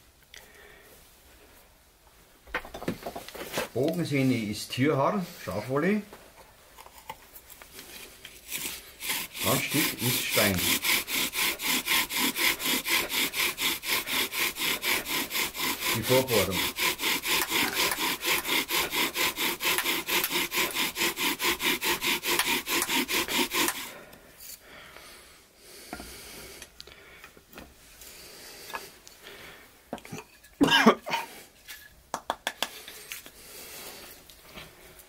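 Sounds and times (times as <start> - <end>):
bow drill rubbing wood: 7.7 - 24.6
handling of wood and tools: 29.9 - 32.0.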